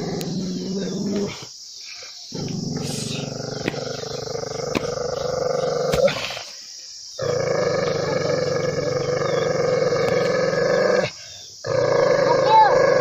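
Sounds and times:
dog growling: 0:00.0 - 0:01.4, 0:07.2 - 0:13.0.

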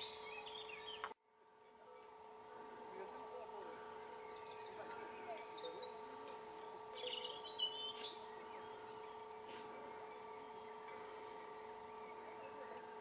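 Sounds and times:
bird chirp: 0:00.0 - 0:01.1, 0:03.6 - 0:13.0.

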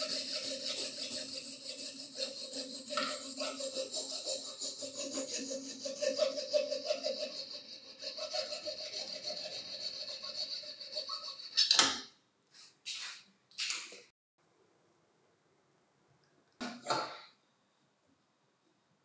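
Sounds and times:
hand saw cutting plastic: 0:00.0 - 0:11.9.

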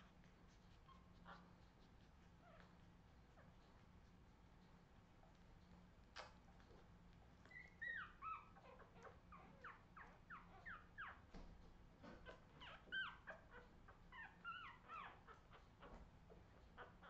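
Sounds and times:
puppies squeaking and whimpering: 0:07.4 - 0:11.4, 0:12.0 - 0:17.0.

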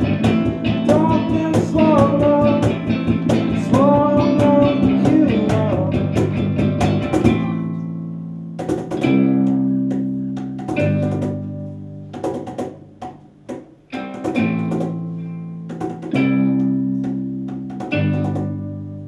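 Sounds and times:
guitar chords ringing out: 0:00.0 - 0:12.2
acoustic rock band playing: 0:00.0 - 0:19.0
man singing: 0:00.7 - 0:06.1.

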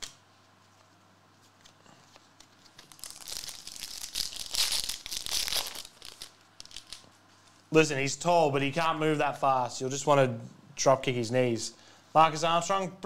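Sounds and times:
foil wrapper crinkling and tearing: 0:02.2 - 0:07.2.

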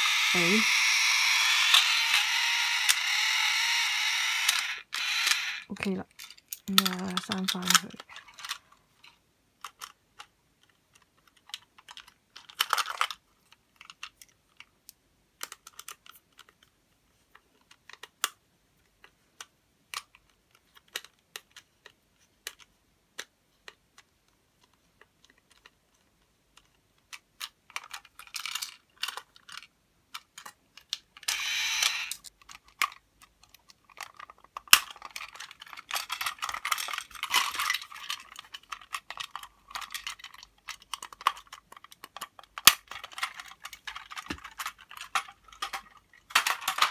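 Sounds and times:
screwdriver clicks and scrapes: 0:00.0 - 0:05.7, 0:31.2 - 0:32.3
plastic toy clattering: 0:00.0 - 0:46.9.

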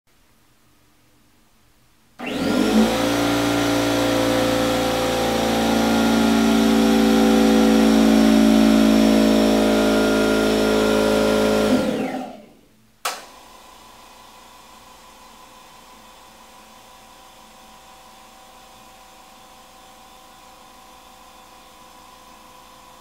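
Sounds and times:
air compressor running loudly: 0:02.2 - 0:12.6
compressor spinning down: 0:02.2 - 0:12.6.

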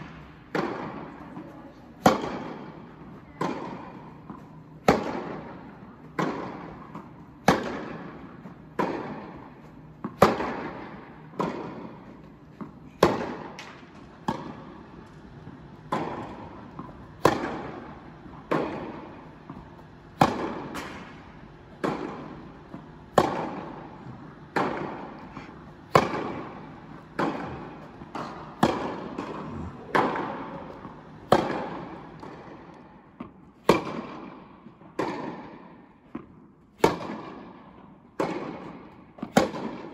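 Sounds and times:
tennis ball bouncing: 0:00.0 - 0:39.9
tennis racket strikes: 0:02.0 - 0:14.7, 0:20.2 - 0:21.2, 0:24.5 - 0:34.4, 0:36.8 - 0:37.6, 0:38.2 - 0:39.9.

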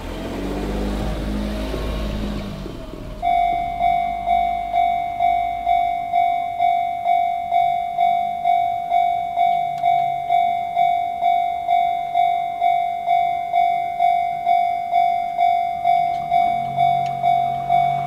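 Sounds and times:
level crossing alarm dinging: 0:02.8 - 0:18.0.

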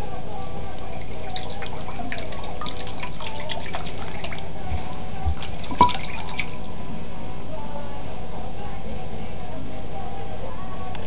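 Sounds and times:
small water splashes and drips: 0:00.8 - 0:06.7.

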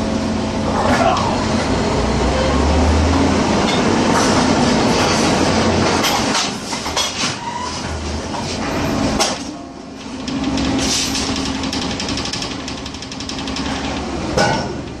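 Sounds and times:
machinery humming and rattling: 0:00.0 - 0:15.0.

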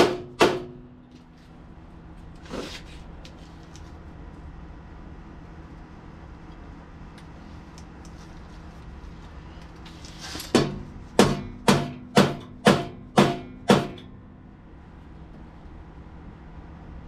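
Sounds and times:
mallet blows on metal rack: 0:10.5 - 0:14.1.

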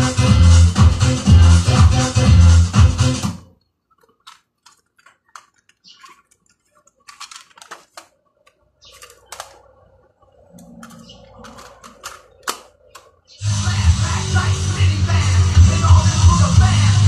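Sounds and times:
plastic clicks and rattles: 0:03.5 - 0:13.4.

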